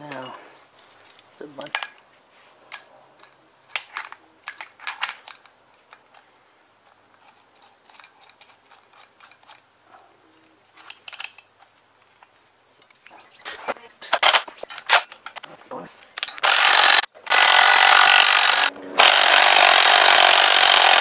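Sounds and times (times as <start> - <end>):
steel parts clinking: 10.7 - 15.4.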